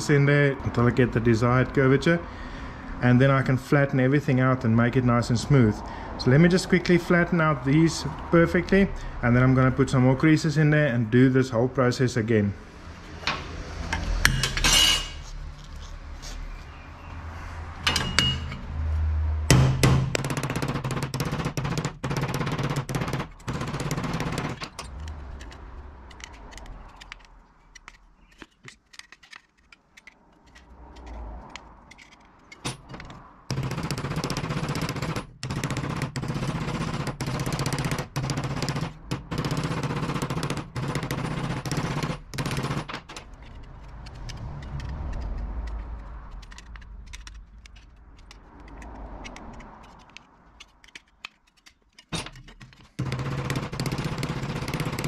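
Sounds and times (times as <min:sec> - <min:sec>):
hammer striking metal strip: 0:19.5 - 0:24.9.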